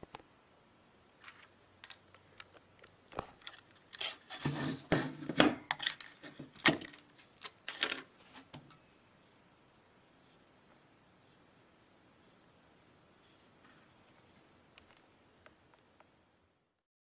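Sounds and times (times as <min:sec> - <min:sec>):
heatsink clicking and scraping on desk: 0:01.2 - 0:09.3, 0:13.2 - 0:16.2.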